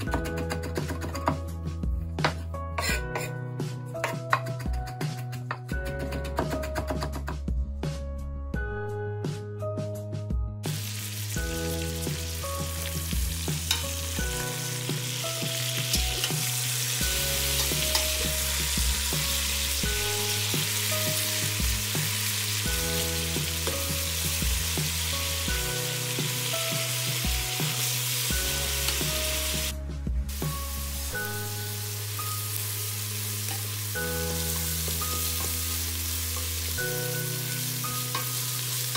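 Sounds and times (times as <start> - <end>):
onions sizzling in butter: 10.6 - 29.7, 30.3 - 38.9.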